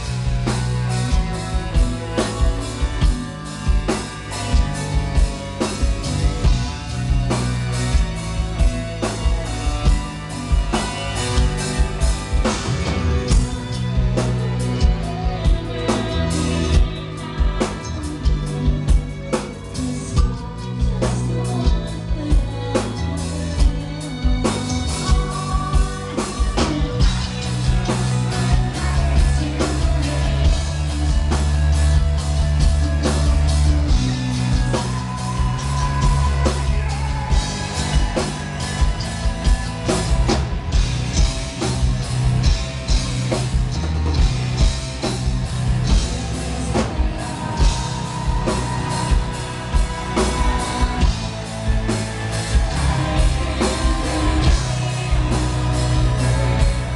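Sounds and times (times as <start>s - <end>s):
distorted electric guitars: 0.0s - 56.9s
female lead vocals: 0.0s - 56.9s
heavy bass: 0.0s - 56.9s
pounding drum kit: 0.0s - 56.9s
man singing: 9.0s - 40.4s, 45.9s - 56.9s.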